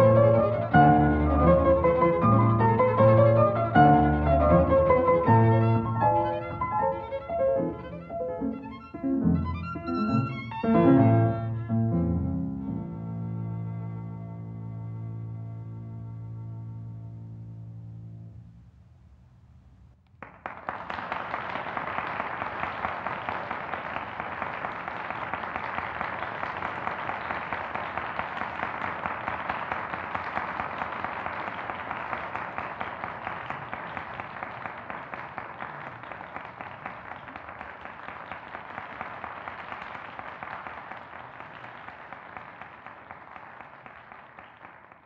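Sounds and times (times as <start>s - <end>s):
audience applauding: 20.1s - 45.0s.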